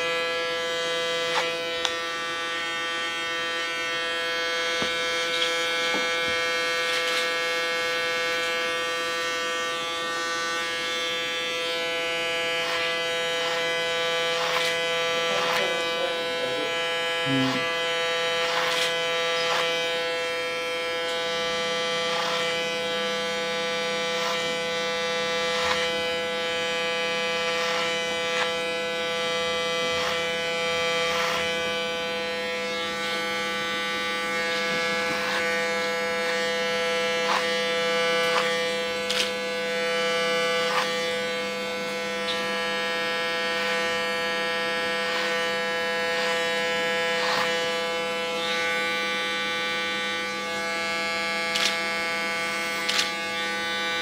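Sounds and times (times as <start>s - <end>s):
electric hair clippers buzzing: 0.0s - 54.0s
small clicks of blade and comb: 51.5s - 51.8s.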